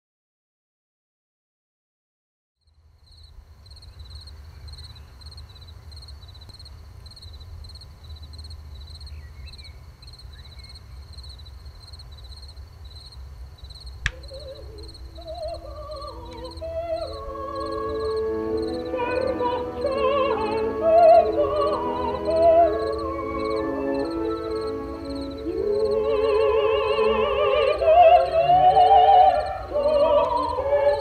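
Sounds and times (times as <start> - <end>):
insects chirping: 2.6 - 31.0
sharp click: 14.0 - 14.3
wavering voice-like melody: 14.1 - 31.0.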